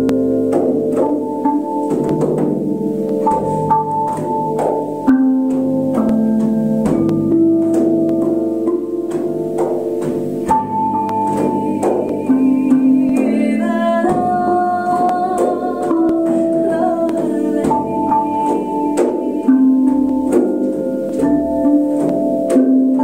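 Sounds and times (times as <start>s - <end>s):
metal bells and gongs ringing: 0.0s - 23.0s.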